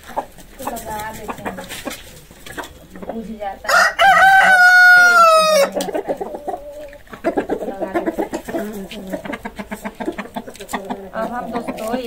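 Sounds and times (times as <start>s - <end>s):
chicken clucking: 0.0s - 12.0s
rooster crowing: 3.6s - 5.9s.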